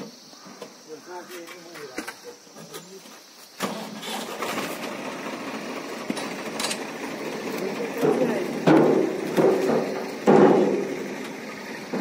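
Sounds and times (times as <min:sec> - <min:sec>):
tractor engine running: 0:03.6 - 0:12.0.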